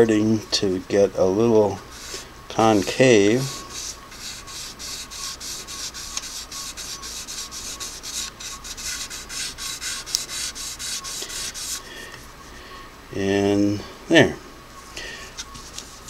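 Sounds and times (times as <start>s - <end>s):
brush scratching on sandpaper: 1.9s - 11.8s.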